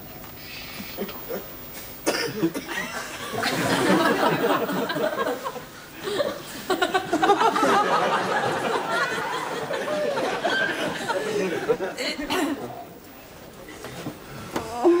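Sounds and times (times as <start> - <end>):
studio audience laughing: 2.7 - 12.7.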